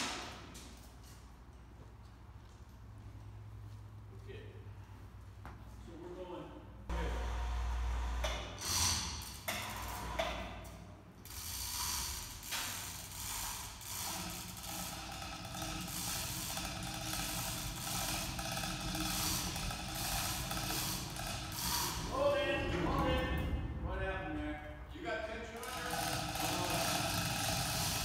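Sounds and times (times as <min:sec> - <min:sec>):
ratchet clicking: 0:11.2 - 0:22.1, 0:25.6 - 0:28.0
hoist chain rattling: 0:25.6 - 0:28.0.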